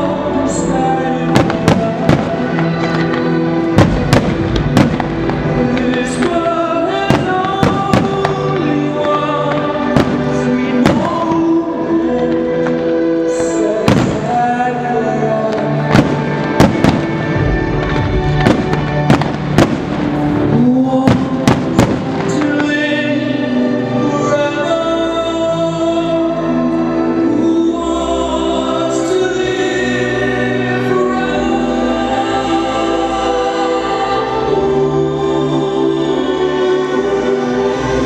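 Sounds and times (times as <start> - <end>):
choral music: 0.0 - 38.0
firework bangs: 1.3 - 11.5, 13.8 - 14.6, 15.5 - 22.8.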